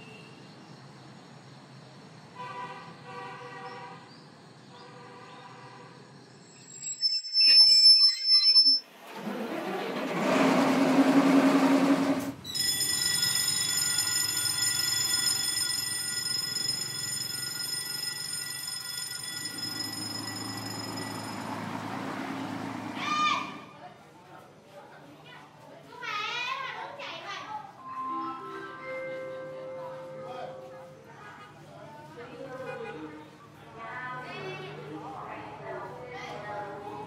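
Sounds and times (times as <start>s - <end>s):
high-pitched wheel and brake squeal: 6.2s - 10.7s, 12.2s - 15.9s, 19.2s - 23.7s
train rumble: 8.9s - 14.5s.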